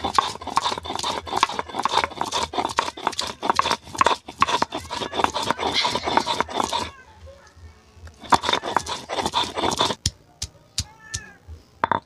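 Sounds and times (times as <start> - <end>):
stone grinding on stone slab: 0.0 - 6.9, 8.1 - 10.0.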